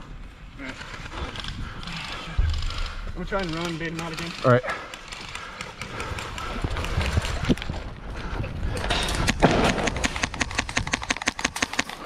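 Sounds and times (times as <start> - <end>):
running footsteps: 0.8 - 12.0
rapid airsoft rifle shots: 9.1 - 12.0.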